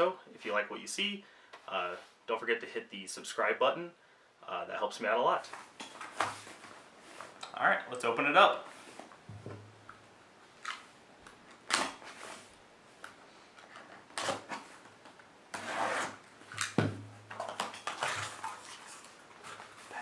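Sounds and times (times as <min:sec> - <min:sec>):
box cutter slicing tape: 0:14.1 - 0:14.6, 0:15.5 - 0:16.8.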